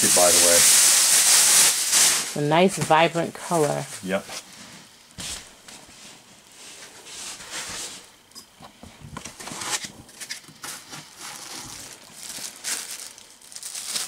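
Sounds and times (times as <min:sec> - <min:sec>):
packaging rustling and crinkling: 0:00.0 - 0:05.4, 0:09.2 - 0:14.0.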